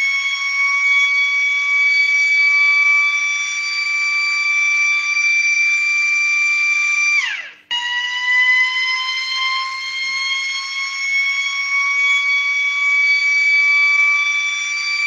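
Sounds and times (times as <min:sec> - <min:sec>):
motor-driven siren wailing: 0:00.0 - 0:15.0.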